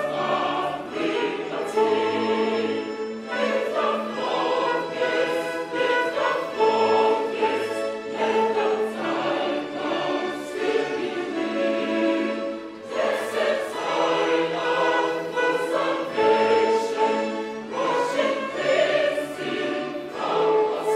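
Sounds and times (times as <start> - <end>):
mixed choir singing a hymn: 0.0 - 20.9
violins: 0.0 - 20.9.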